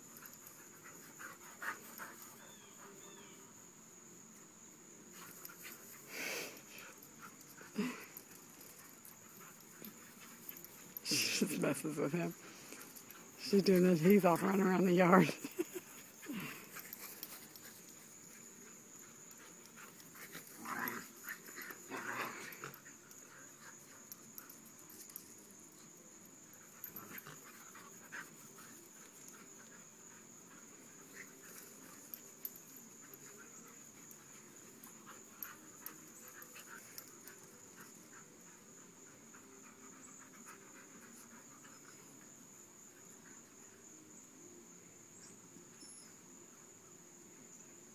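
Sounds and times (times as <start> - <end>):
dogs playing: 0.0 - 3.4, 5.1 - 43.8.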